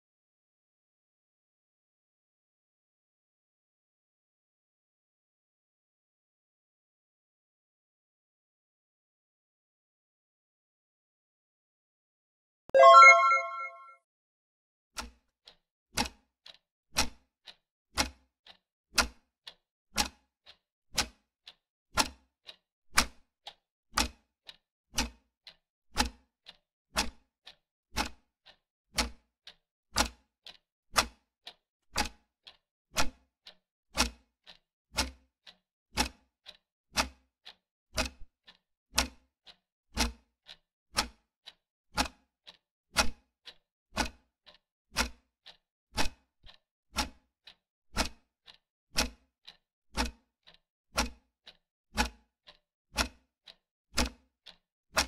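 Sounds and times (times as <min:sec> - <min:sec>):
clock ticking: 0:12.8 - 0:13.8, 0:19.0 - 0:20.2, 0:25.0 - 0:26.2, 0:29.0 - 0:29.2, 0:30.0 - 0:31.2, 0:44.0 - 0:48.3, 0:50.0 - 0:53.2.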